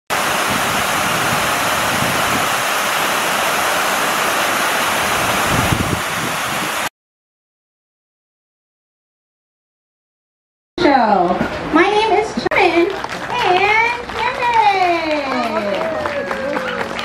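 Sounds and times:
waterfall rushing into pool: 0.1 - 6.9.

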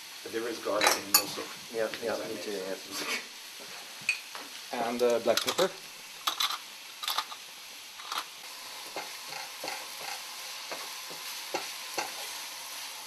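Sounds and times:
meat and onions sizzling in a pan: 0.0 - 13.0
wooden spatula scraping a pan: 2.9 - 3.8, 8.9 - 12.4.

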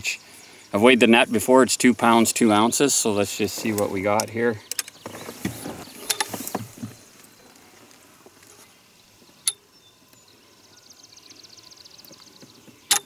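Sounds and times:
clicks and rustling of net: 3.6 - 8.6.

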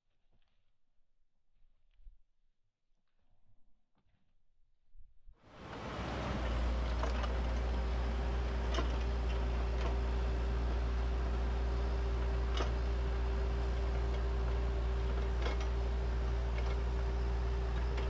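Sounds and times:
diesel engine running: 5.5 - 18.0
mid-pitched whine: 5.6 - 18.0.

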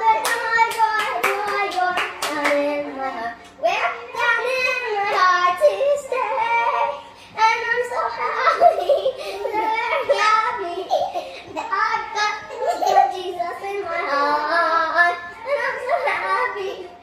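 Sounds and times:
young children singing: 0.0 - 17.0
hand claps: 0.2 - 2.6.

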